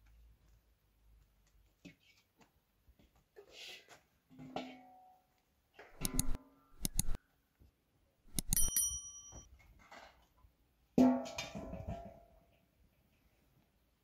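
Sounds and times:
clicks: 0:06.0 - 0:07.2, 0:08.3 - 0:09.0
notification bell ding: 0:08.4 - 0:09.5.

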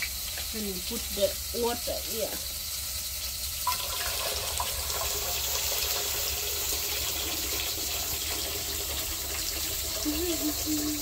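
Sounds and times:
water pouring into bowl: 0:03.4 - 0:11.0.

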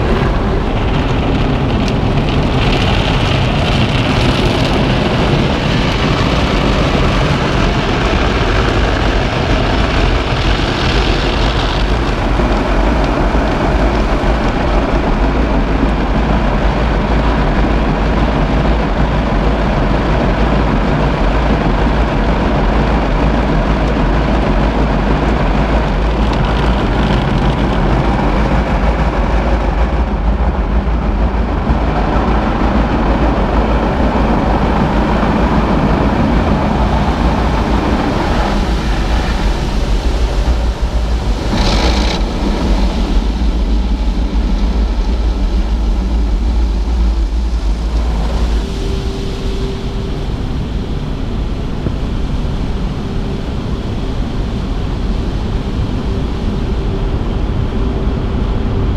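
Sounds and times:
car wash water jets and brushes: 0:00.0 - 0:58.9.

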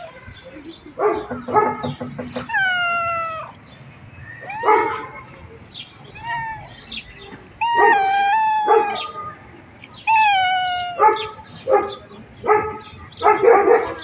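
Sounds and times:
cat meowing: 0:02.4 - 0:03.6, 0:04.4 - 0:05.2, 0:07.6 - 0:09.2, 0:10.1 - 0:11.1.

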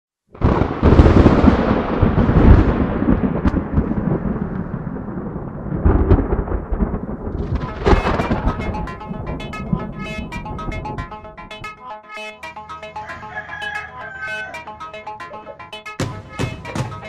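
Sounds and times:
low thunder-like rumbling: 0:00.4 - 0:11.0.

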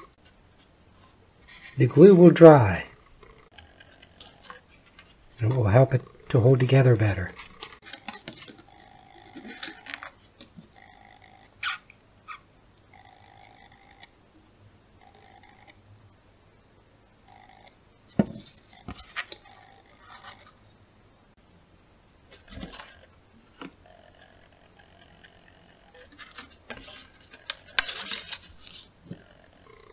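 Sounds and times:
faint steady tone: 0:00.9 - 0:29.9
paper plates clicking and knocking: 0:07.4 - 0:10.8, 0:18.1 - 0:20.6, 0:22.3 - 0:23.8, 0:24.9 - 0:29.3.

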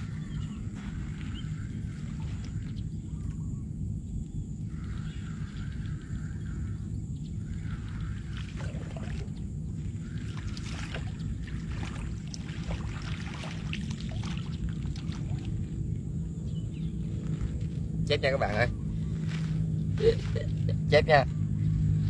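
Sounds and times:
wind rumble on microphone: 0:00.0 - 0:22.0
fish splashing in water: 0:07.6 - 0:15.8.

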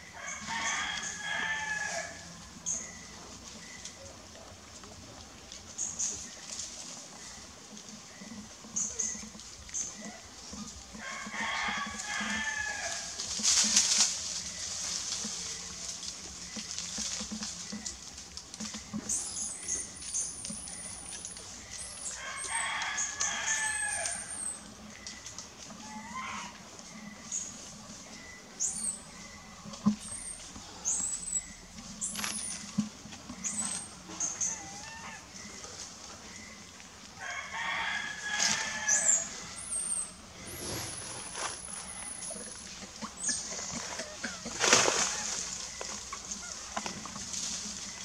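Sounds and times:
rooster crowing: 0:00.1 - 0:02.4, 0:10.9 - 0:13.2, 0:22.1 - 0:24.5, 0:37.2 - 0:41.0.

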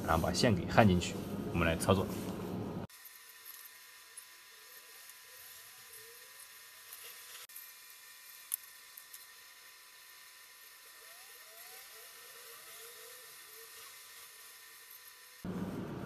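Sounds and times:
thin high whine: 0:00.0 - 0:16.0
small ticks: 0:03.0 - 0:09.5.

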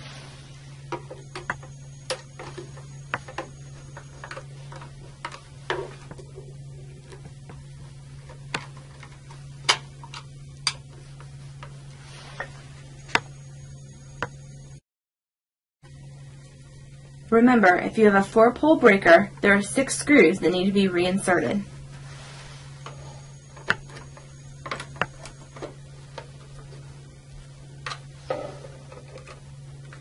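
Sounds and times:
low hum: 0:00.0 - 0:14.8, 0:15.8 - 0:30.0.

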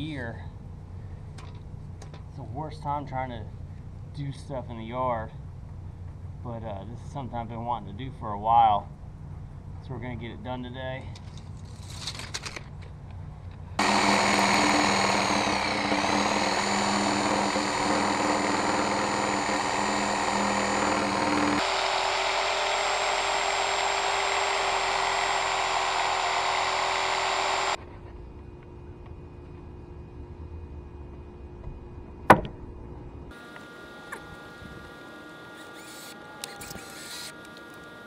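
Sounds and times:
reciprocating saw cutting wood: 0:13.8 - 0:27.8, 0:33.3 - 0:38.0.

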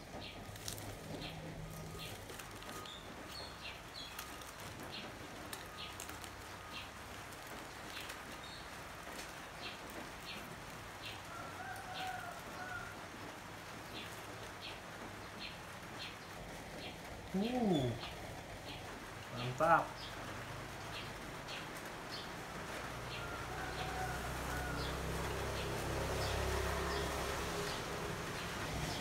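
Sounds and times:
bird chirping: 0:00.0 - 0:10.4
dry leaves rustling and crackling: 0:00.0 - 0:29.0.

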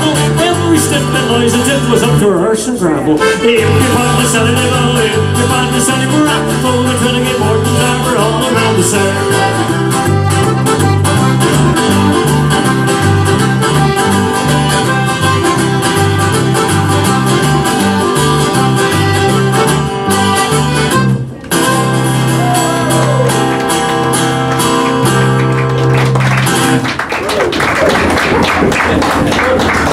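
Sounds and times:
button accordion: 0:00.0 - 0:02.2, 0:03.1 - 0:22.2
strummed acoustic guitar: 0:00.0 - 0:26.9
electric bass walking: 0:03.1 - 0:26.9.

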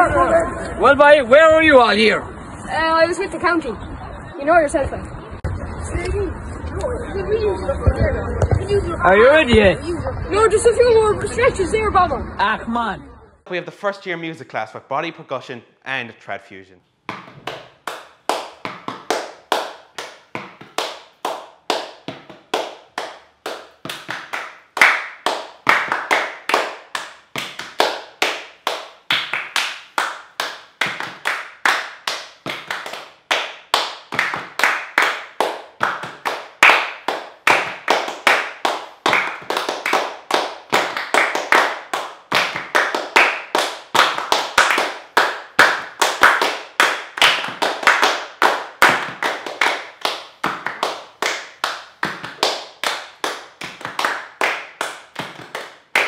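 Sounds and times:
rhythmic hand claps and taps: 0:17.1 - 0:56.0.

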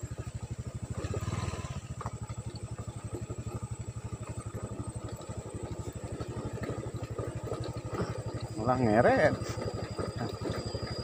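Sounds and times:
small motorcycle engine running: 0:00.0 - 0:11.0.

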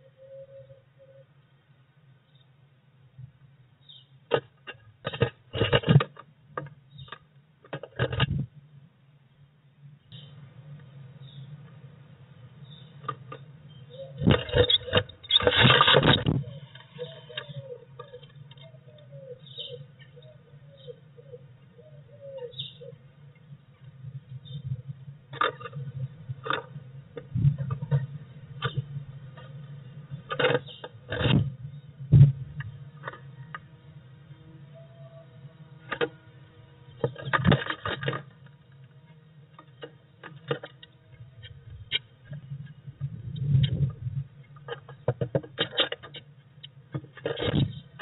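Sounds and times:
soft bird sounds: 0:00.0 - 0:01.4, 0:03.8 - 0:05.9, 0:06.6 - 0:07.3, 0:10.0 - 0:11.8, 0:12.4 - 0:48.0
steady low hum: 0:00.0 - 0:48.0
bird wingbeats and scrabbling: 0:04.3 - 0:06.2, 0:14.1 - 0:18.7.

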